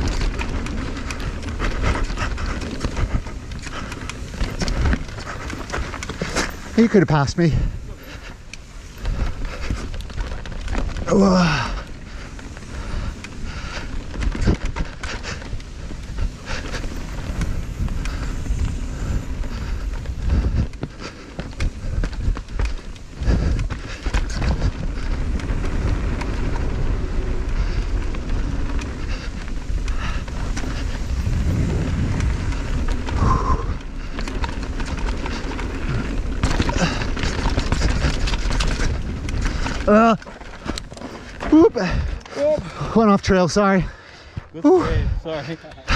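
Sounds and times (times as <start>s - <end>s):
bike clattering over rocks: 0.0s - 43.7s
rumble of bike tyres on dirt: 0.0s - 45.9s
wind on microphone: 7.5s - 42.9s.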